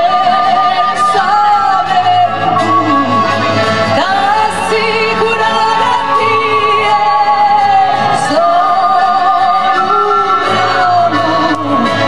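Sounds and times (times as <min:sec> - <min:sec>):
woman singing folk song: 0:03.9 - 0:12.0.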